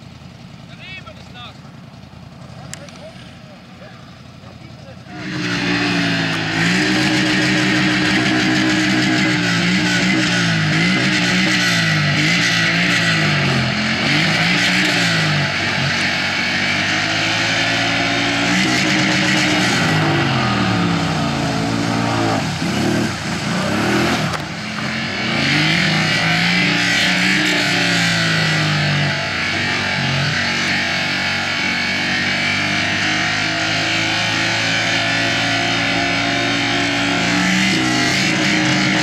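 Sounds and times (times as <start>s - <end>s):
quad bike engine revving: 0.0s - 39.0s.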